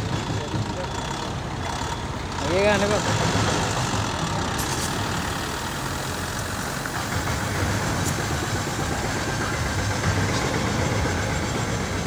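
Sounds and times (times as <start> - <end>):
truck engine running: 0.0 - 12.0
spraying hiss: 4.6 - 11.8.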